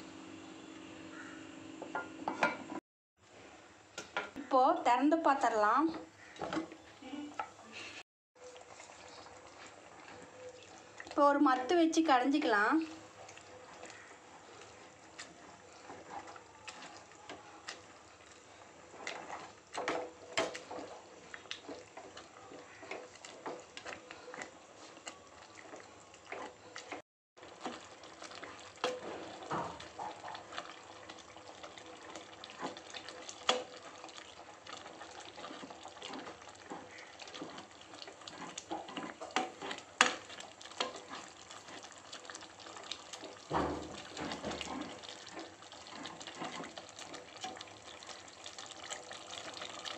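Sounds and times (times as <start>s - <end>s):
wooden masher squelching in pot: 4.0s - 49.9s.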